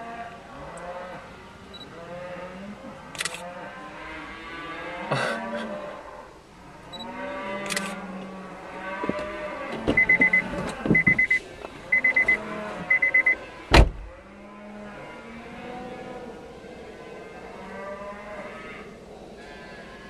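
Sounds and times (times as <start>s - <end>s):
cattle mooing: 0.0s - 20.0s
rapid high beeps: 10.0s - 13.4s.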